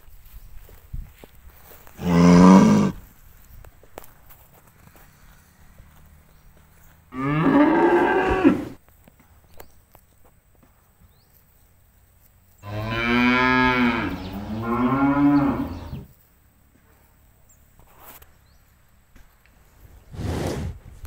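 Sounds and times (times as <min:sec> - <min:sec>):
cattle mooing: 0:02.0 - 0:03.0, 0:07.1 - 0:08.8, 0:12.7 - 0:16.0.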